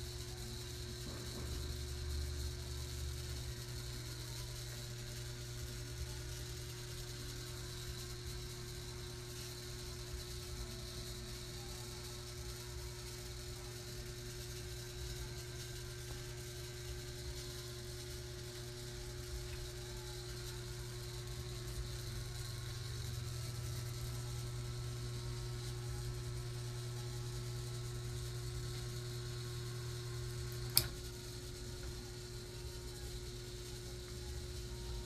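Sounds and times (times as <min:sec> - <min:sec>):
ceiling fan motor hum: 0:00.0 - 0:35.0
sharp click: 0:30.6 - 0:31.1.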